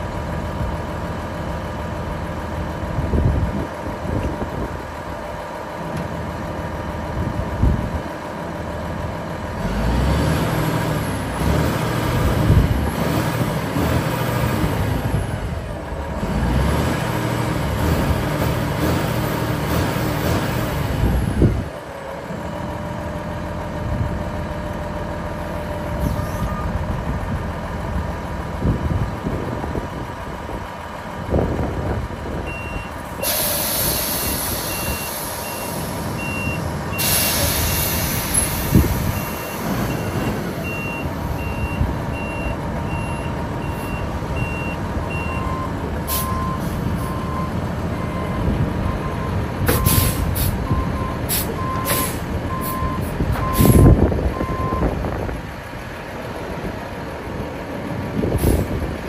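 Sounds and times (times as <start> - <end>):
diesel truck engine running: 0.0 - 59.0
reversing beeper: 32.5 - 54.9
air release hiss: 33.2 - 35.4, 37.0 - 38.9.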